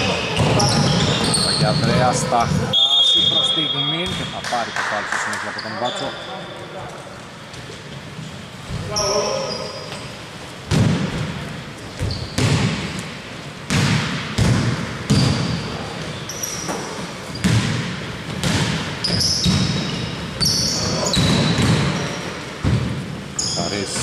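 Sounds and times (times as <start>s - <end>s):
sneakers squeaking on floor: 0.0s - 4.4s, 5.4s - 13.1s, 13.7s - 24.0s
basketball bouncing in gym: 0.0s - 4.5s, 9.9s - 24.0s.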